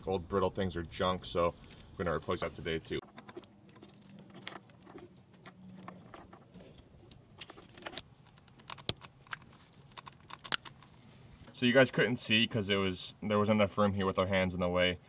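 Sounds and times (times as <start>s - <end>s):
plastic connectors clicking: 7.1s - 10.9s.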